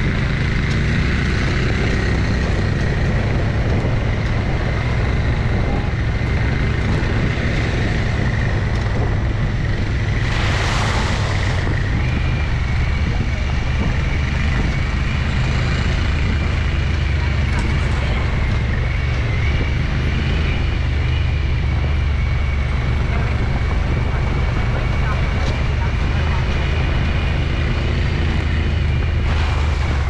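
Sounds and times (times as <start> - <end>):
off-road vehicle engine running: 0.0 - 30.0.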